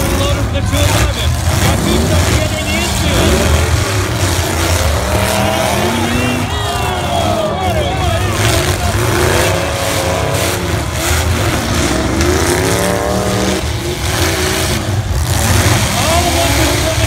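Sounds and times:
car engines revving: 0:00.0 - 0:17.0.

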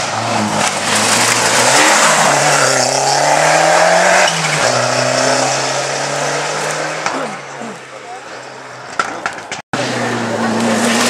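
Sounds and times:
car engine revving high: 0:00.4 - 0:07.1.

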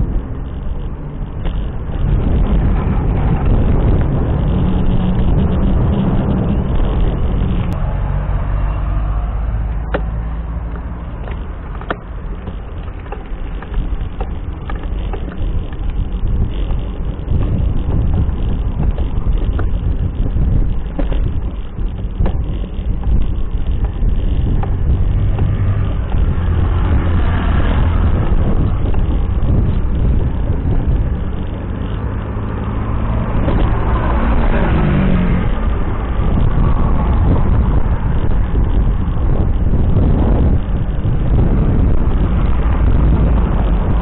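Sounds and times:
car passing: 0:00.0 - 0:14.6, 0:23.5 - 0:44.0
road traffic: 0:00.0 - 0:44.0
wind rumbling on microphone: 0:00.0 - 0:44.0.

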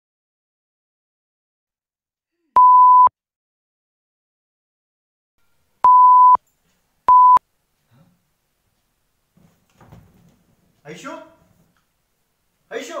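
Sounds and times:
electronic beeps: 0:02.6 - 0:03.1, 0:05.9 - 0:06.4, 0:07.1 - 0:07.4.

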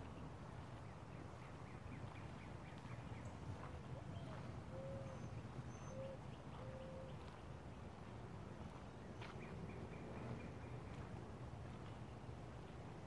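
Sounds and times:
birds whistling and chirping: 0:04.0 - 0:07.2.

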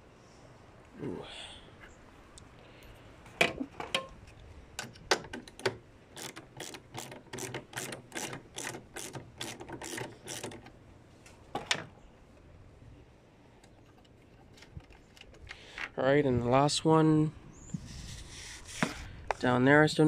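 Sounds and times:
ratchet wrench clicking: 0:06.2 - 0:10.7.

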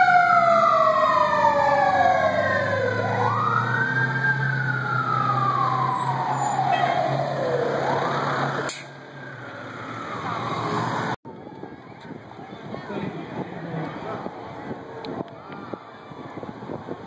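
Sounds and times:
faint siren: 0:00.0 - 0:12.1, 0:14.7 - 0:17.0
fire engine siren wailing: 0:00.0 - 0:12.1, 0:13.7 - 0:17.0
traffic: 0:00.0 - 0:17.0.

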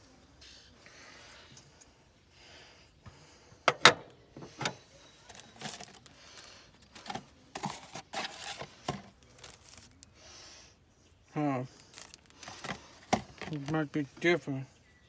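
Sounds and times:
cardboard box scraping and rustling: 0:07.0 - 0:09.6.

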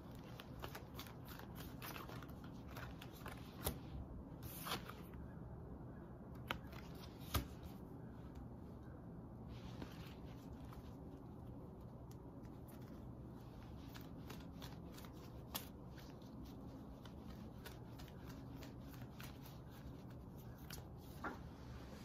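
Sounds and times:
cards riffling: 0:00.0 - 0:05.1, 0:11.9 - 0:21.2
cards snapping: 0:00.1 - 0:03.8.

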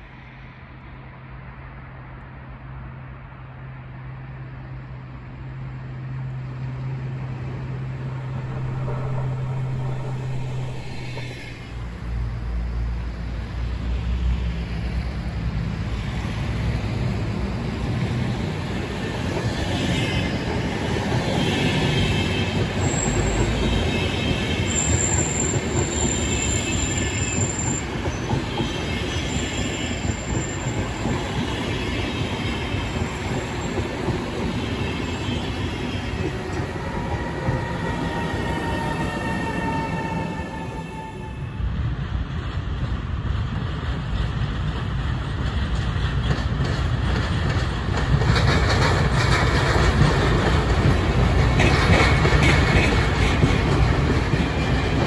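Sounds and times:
train coaches rolling on rails: 0:05.4 - 0:12.7, 0:15.8 - 0:55.0
high-pitched wheel squeals: 0:36.8 - 0:41.5.

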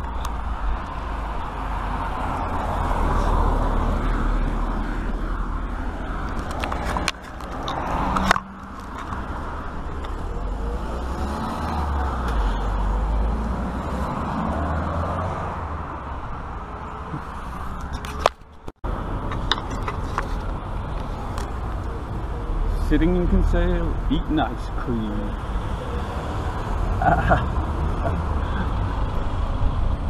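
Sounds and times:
bicycle tyres on road: 0:00.0 - 0:21.9
wind on microphone: 0:28.2 - 0:30.0.

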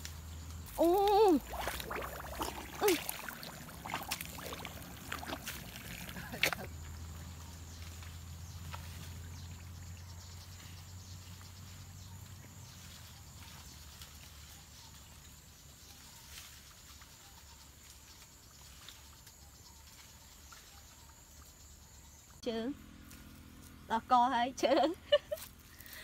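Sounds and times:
insects chirring: 0:00.0 - 0:26.0
rustling leaves and twigs snapping: 0:13.0 - 0:15.3.

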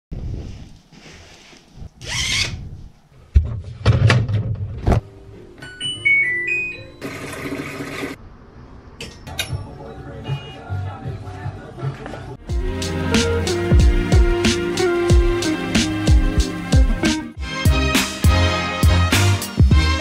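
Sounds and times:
laundry rustling: 0:00.1 - 0:02.0
washing machine beeps: 0:05.6 - 0:07.4.

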